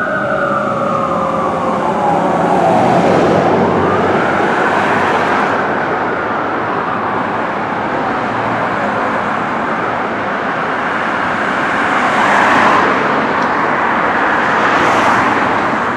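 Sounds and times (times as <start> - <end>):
car passing close: 0.0 - 6.0, 11.5 - 15.9
fire engine siren: 0.0 - 15.9
street traffic: 0.0 - 15.9.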